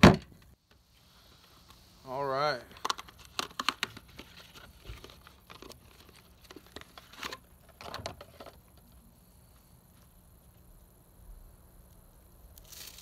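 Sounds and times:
foil rustling and crinkling: 12.6 - 13.0.

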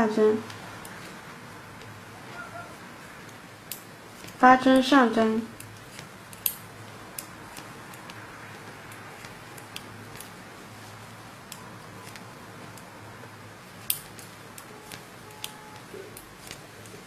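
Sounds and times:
knitting needles clicking: 3.2 - 10.4, 13.8 - 17.0.

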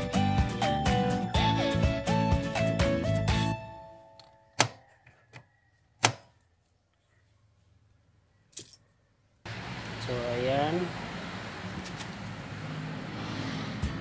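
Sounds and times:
background music: 0.0 - 4.6
hood release lever clicks and clunks: 4.2 - 4.8, 6.0 - 6.3.

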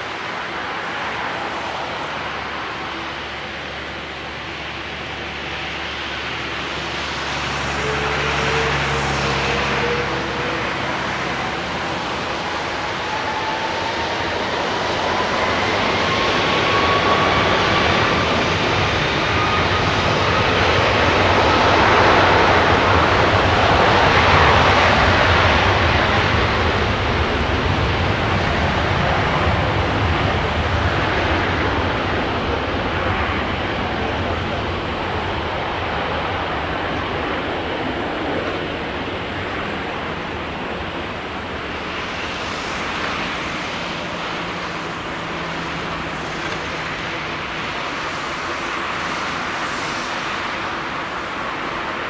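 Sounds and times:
jet engines spooling up: 0.0 - 52.0.

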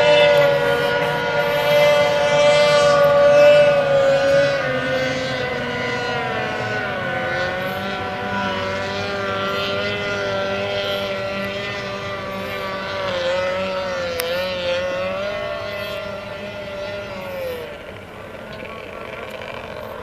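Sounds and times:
outboard engine high whine: 0.0 - 20.0.

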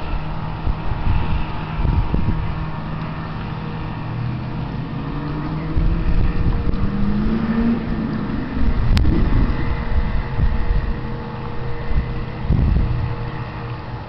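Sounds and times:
engine rumbling: 0.0 - 14.0.

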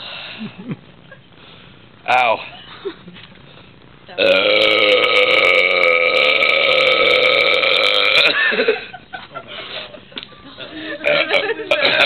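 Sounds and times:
long loud belch: 4.2 - 8.7, 11.0 - 12.0.

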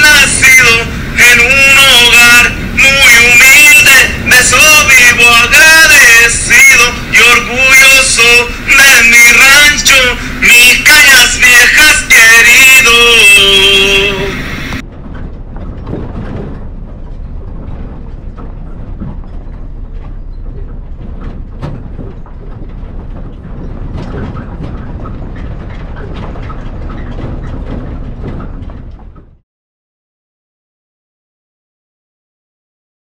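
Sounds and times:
vehicle road rumble: 0.0 - 29.4
small rattles and clicks: 14.8 - 29.4.

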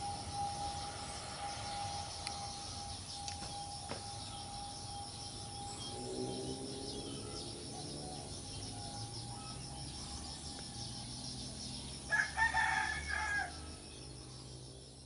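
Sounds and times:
low hum: 0.0 - 12.0
insects chirring: 0.0 - 15.0
rooster crowing: 12.0 - 13.8.

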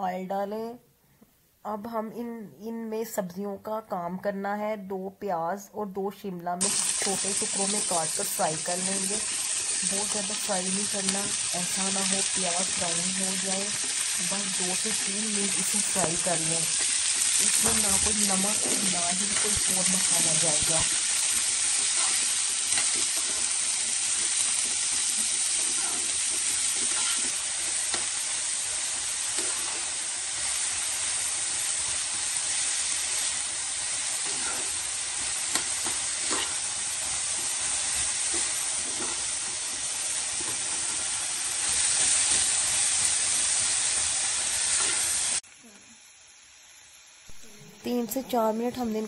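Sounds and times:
vegetables sizzling in oil: 6.6 - 49.0
metal spoon scraping pan: 24.1 - 28.1, 34.2 - 34.9, 35.5 - 36.7.

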